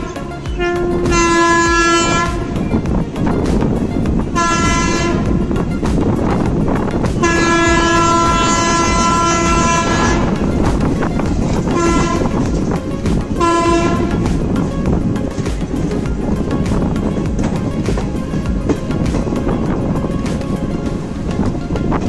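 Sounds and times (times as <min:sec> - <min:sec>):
train horn: 0:00.0 - 0:02.6, 0:04.3 - 0:05.5, 0:07.2 - 0:10.6, 0:11.2 - 0:12.4, 0:13.3 - 0:14.4
moving train running noise: 0:00.0 - 0:22.0.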